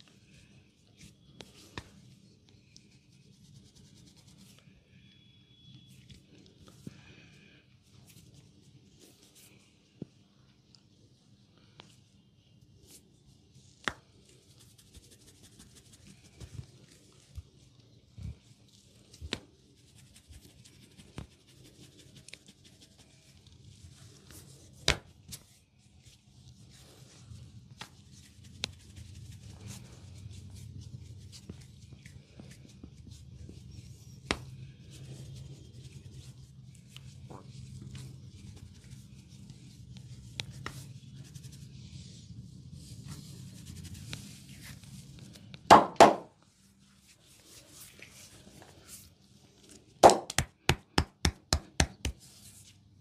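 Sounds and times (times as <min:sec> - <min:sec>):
loud smacks: 0:45.7 - 0:46.3, 0:50.0 - 0:50.5.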